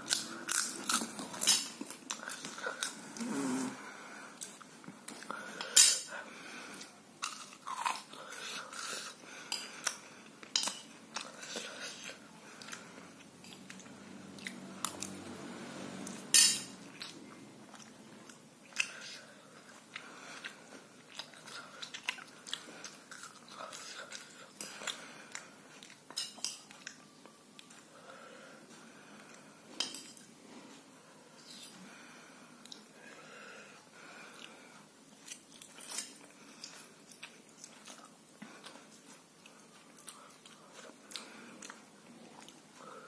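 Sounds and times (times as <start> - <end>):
person chewing noodles: 0.0 - 30.3, 31.4 - 43.0
fork clinking and scraping plate: 16.2 - 16.8.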